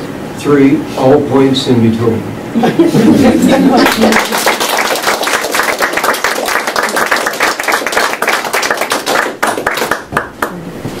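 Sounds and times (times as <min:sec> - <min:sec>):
audience applauding: 0:03.7 - 0:10.6.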